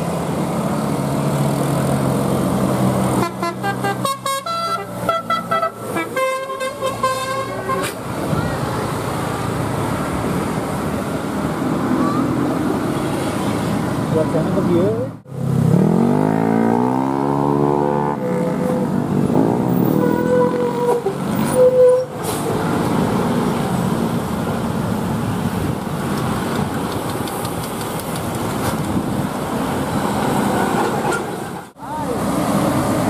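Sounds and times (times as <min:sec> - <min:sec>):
traffic noise: 0:00.0 - 0:33.0
engine revving: 0:15.3 - 0:21.4.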